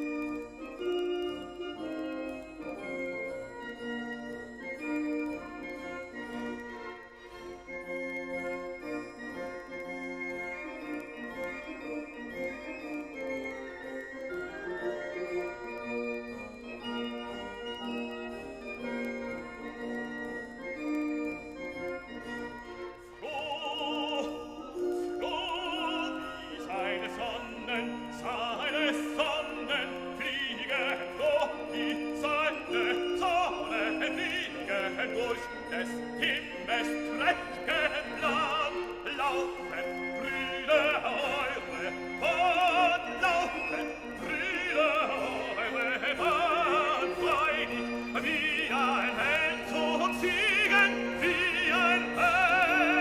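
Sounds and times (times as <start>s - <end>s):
orchestra holding chords: 0.0s - 53.0s
operatic singing with vibrato: 23.0s - 53.0s.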